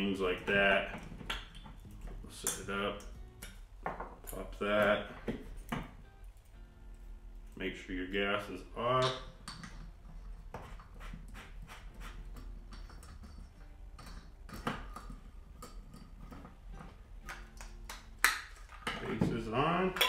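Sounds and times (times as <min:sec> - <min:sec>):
metal parts clicking and tapping: 0:09.0 - 0:10.1, 0:12.3 - 0:20.0.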